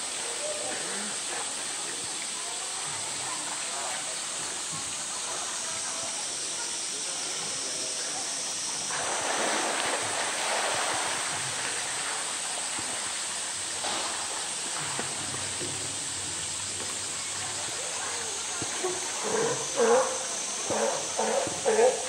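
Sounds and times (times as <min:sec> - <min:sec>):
water splashing off animal: 0:07.7 - 0:22.0
background water rushing: 0:08.0 - 0:22.0.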